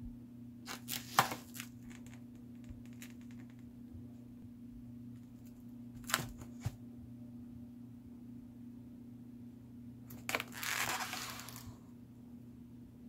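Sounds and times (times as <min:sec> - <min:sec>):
steady low hum: 0:00.0 - 0:13.0
plastic wrap crinkling: 0:10.1 - 0:11.8.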